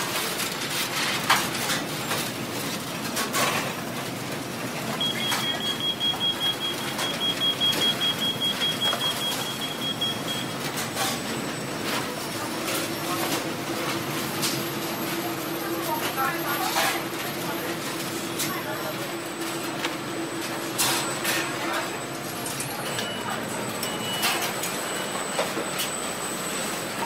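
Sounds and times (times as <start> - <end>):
kitchen noise: 4.9 - 26.0
high electronic beep: 5.0 - 11.2.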